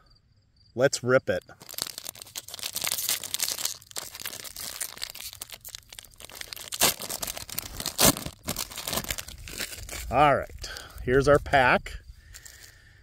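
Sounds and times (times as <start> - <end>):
foil wrapper tearing and crinkling: 1.5 - 11.0.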